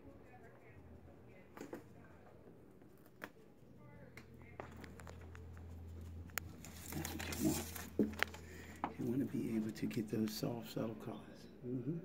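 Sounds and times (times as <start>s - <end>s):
faint indistinct voices: 0.0s - 12.0s
steady low hum: 0.0s - 12.0s
rustling handling noise: 4.5s - 9.8s.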